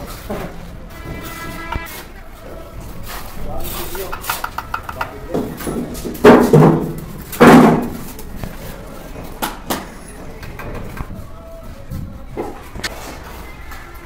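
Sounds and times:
sharp taps on bricks: 4.0 - 5.5.

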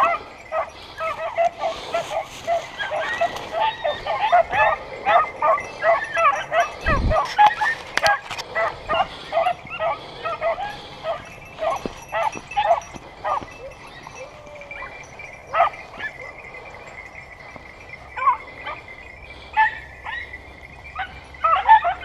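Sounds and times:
dogs yelping: 0.0 - 22.0.

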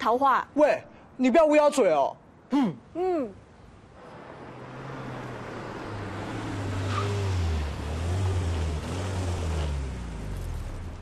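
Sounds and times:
tyre and road noise: 3.4 - 11.0
car engine hum: 3.7 - 11.0.

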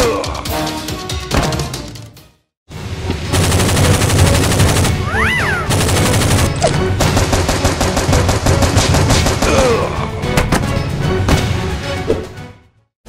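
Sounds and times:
background music: 0.0 - 12.9
machine-gun fire: 3.3 - 5.1, 5.7 - 9.8.

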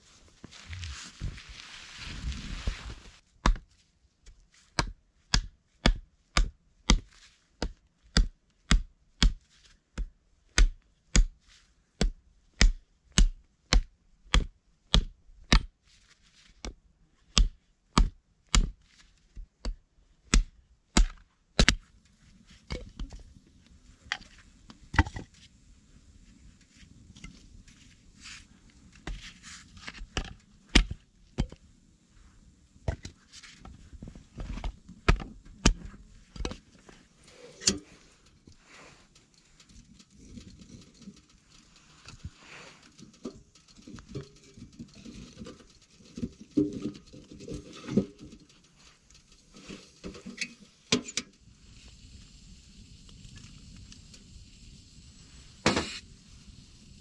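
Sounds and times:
low steady noise: 0.0 - 3.3, 21.4 - 57.0
hatchet chopping firewood: 20.3 - 21.8.

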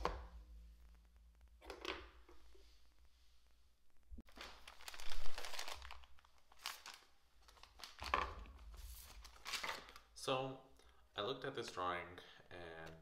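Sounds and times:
paper rustling and crinkling: 4.2 - 10.1.

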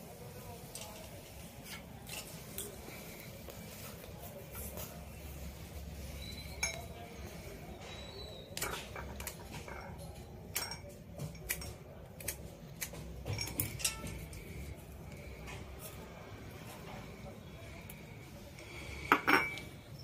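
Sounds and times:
tools and small parts clinking: 6.3 - 7.1, 7.8 - 14.7, 18.6 - 20.0.

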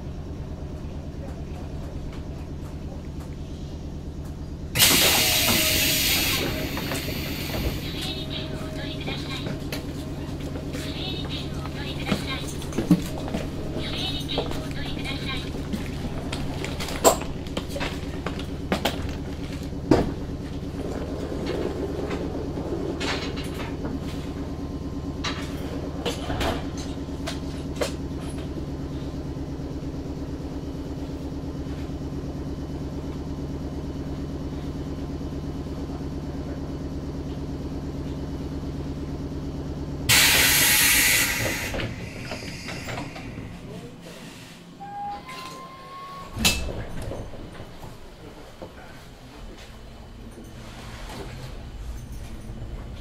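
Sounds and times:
train equipment hum: 0.0 - 53.0
pneumatic door air hiss: 4.8 - 7.9, 40.1 - 43.6.

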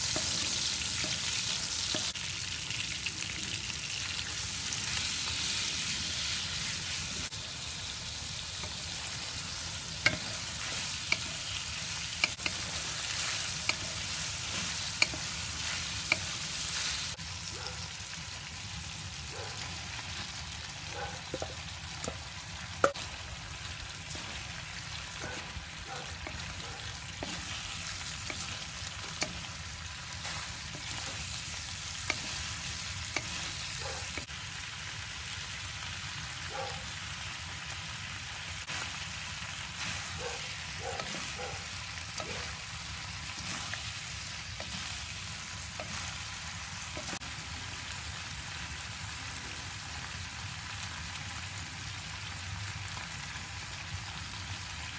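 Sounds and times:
spatula scraping a pan: 0.0 - 2.1, 8.6 - 17.2, 24.0 - 34.3, 43.2 - 46.2
food sizzling in a wok: 0.0 - 54.9.

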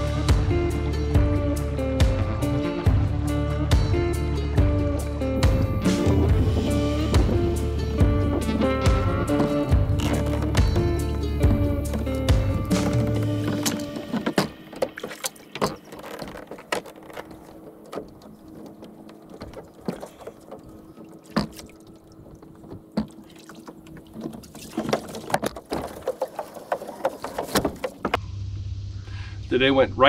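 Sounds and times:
kayak knocking against wooden dock: 5.5 - 28.2.

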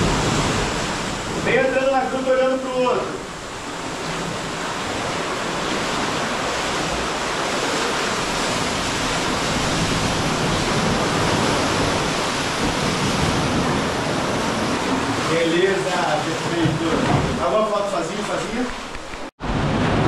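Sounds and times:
sea swell rushing through cave: 0.0 - 16.6.

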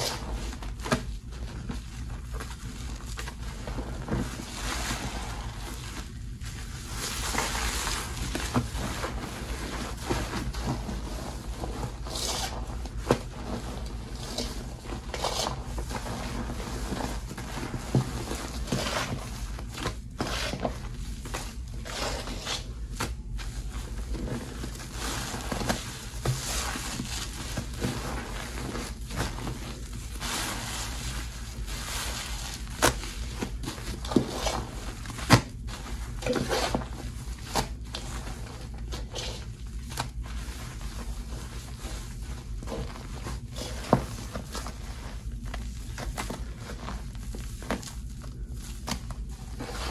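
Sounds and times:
foam crackling and popping: 0.0 - 20.2.

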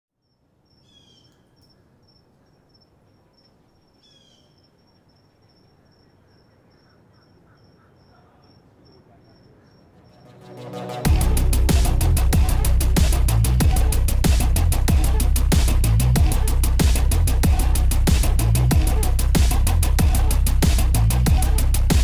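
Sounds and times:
insect chirping: 0.2 - 10.3
descending bird calls: 0.7 - 10.6.

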